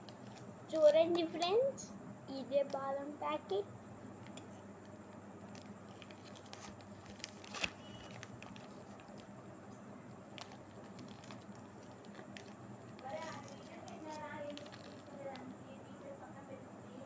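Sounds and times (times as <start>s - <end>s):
foil packet crinkling: 4.8s - 15.5s.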